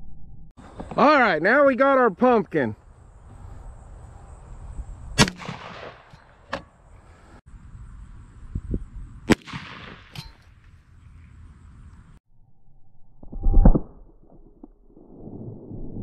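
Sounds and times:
shotgun blasts: 5.2s - 6.7s, 9.3s - 10.4s
sharp crack: 5.2s - 6.8s, 9.3s - 10.8s.

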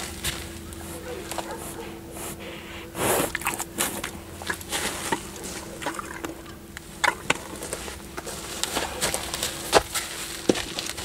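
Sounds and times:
horse chewing: 0.0s - 11.0s.

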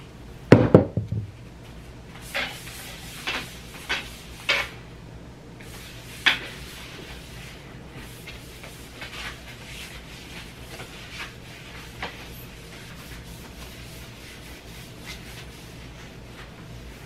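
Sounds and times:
cloth rubbing a tray: 5.6s - 17.0s.

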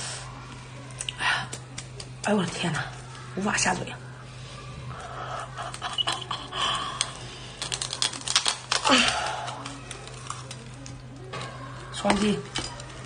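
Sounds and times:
shell cracking between teeth: 5.6s - 11.0s
faint shell crackles: 5.6s - 13.0s.

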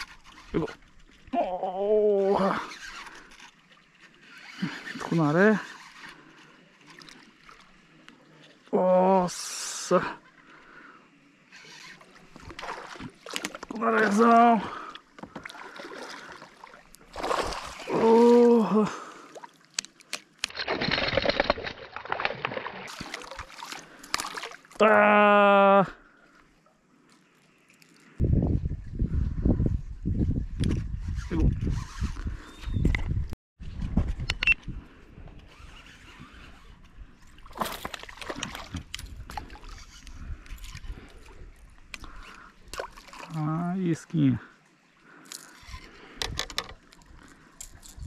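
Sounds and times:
water splashing around kayak: 0.0s - 25.0s, 35.3s - 48.0s.

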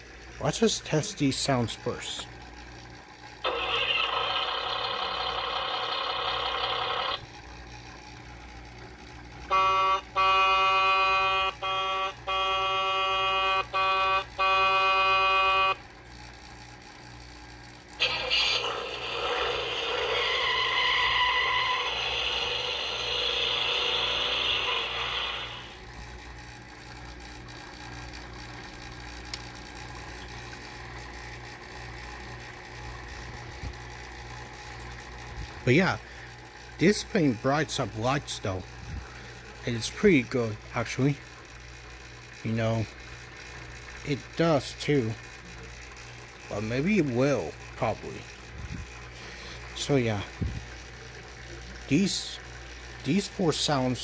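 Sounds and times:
toy electronic horn: 3.4s - 7.2s, 9.5s - 15.8s, 18.0s - 25.8s
toy noisy rushing effect: 3.5s - 7.1s, 18.0s - 25.8s
brief electronic tone: 20.2s - 25.8s.

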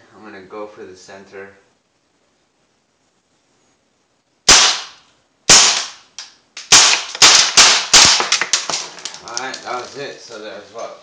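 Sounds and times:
air rifle shots: 4.5s - 9.0s.

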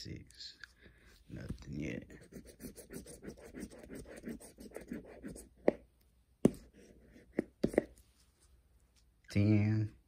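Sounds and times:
scraper scratching a ticket: 2.1s - 5.5s.

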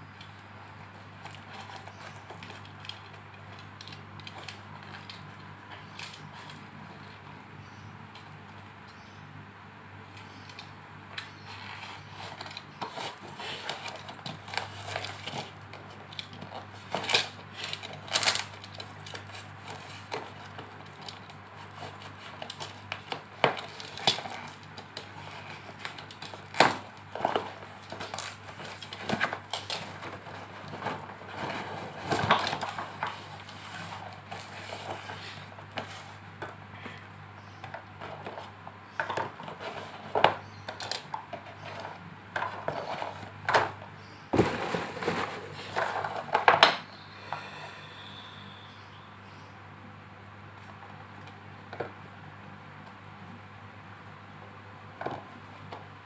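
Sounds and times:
faint steady hum: 0.0s - 56.0s
cardboard and tape tearing: 11.5s - 36.2s.

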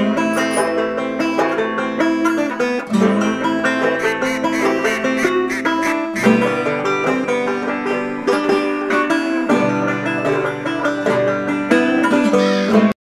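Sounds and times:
plucked string music: 0.0s - 13.0s.

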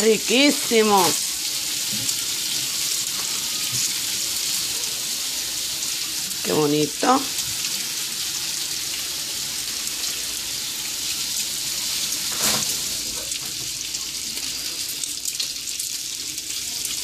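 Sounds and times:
bacon sizzling on a griddle: 0.0s - 17.0s
utensil scraping griddle: 12.1s - 13.2s.

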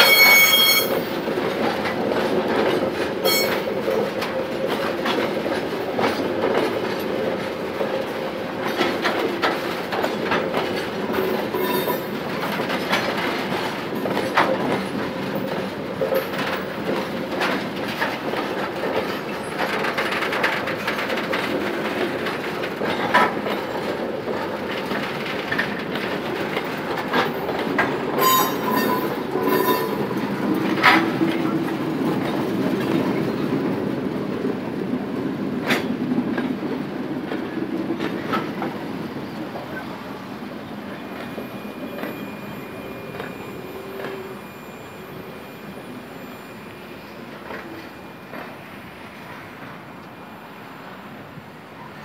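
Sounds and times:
train wheels squealing: 0.0s - 1.2s, 3.1s - 4.0s, 10.9s - 19.7s, 26.4s - 33.6s, 38.1s - 51.2s
wheels clacking at rail joints: 0.0s - 50.2s
freight train rolling on rails: 0.0s - 52.0s.

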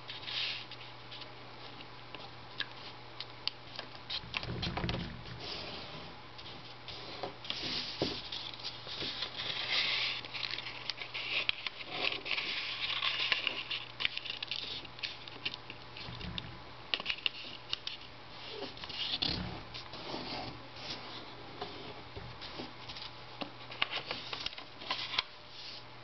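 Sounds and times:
paper rustling and sliding: 4.1s - 15.4s
light taps and paper crinkles: 21.6s - 25.3s.

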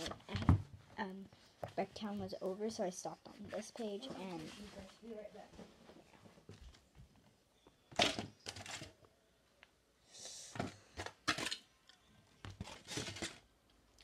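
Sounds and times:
handling rustles and knocks: 0.0s - 9.0s.

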